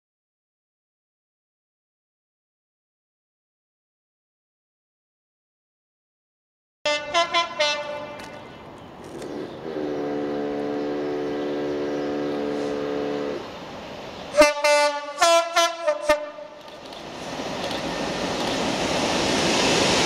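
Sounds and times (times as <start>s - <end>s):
two-tone locomotive horn blasts: 6.9s - 8.5s, 9.3s - 13.5s, 14.4s - 16.6s
approaching train rumble: 6.9s - 20.0s.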